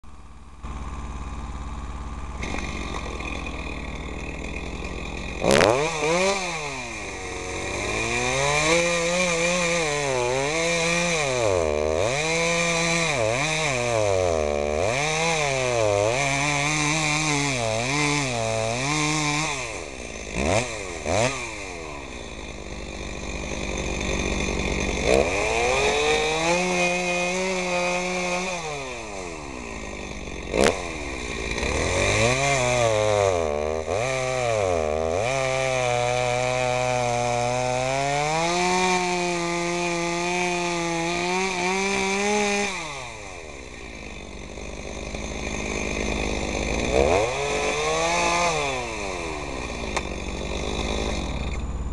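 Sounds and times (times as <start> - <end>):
chainsaw cutting log: 0.1 - 51.9
sharp knocks: 2.4 - 6.2.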